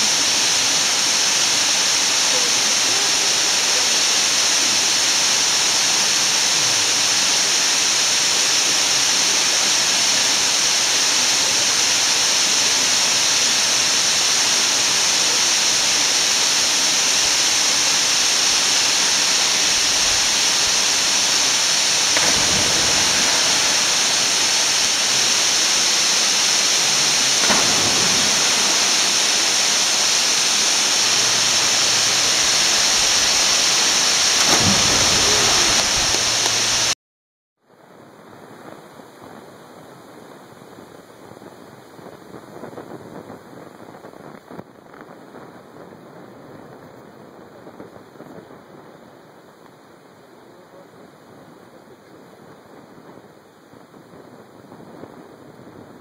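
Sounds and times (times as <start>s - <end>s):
waterfall pouring into pool: 0.0s - 37.0s.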